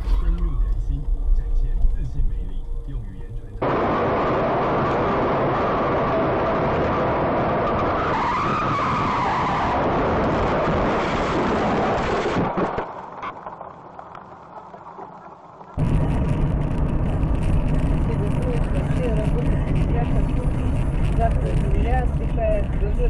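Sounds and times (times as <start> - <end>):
car driving noise: 0.0 - 23.0
car tyres skidding and squealing: 7.6 - 11.2.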